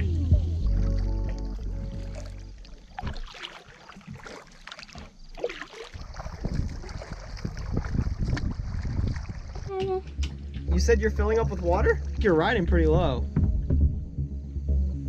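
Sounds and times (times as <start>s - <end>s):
paddle splashing in water: 0.7s - 10.6s.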